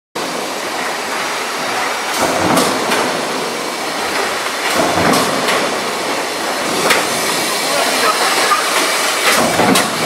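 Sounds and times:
stamping machine noise: 0.2s - 10.0s.

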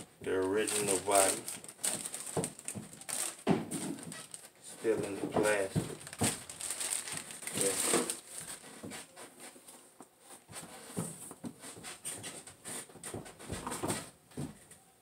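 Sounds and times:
plastic bag crinkling: 0.3s - 8.8s
parts rustling and clattering in box: 0.5s - 8.9s.

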